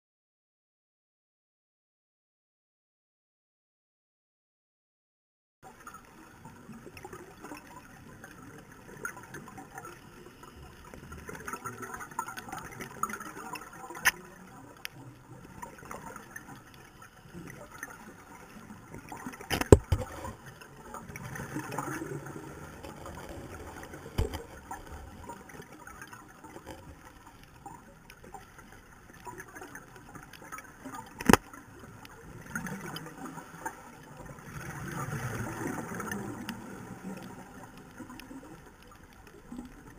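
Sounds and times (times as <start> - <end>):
underwater hiss and bubbling: 5.7 - 39.9
sharp underwater cracks: 10.8 - 39.9.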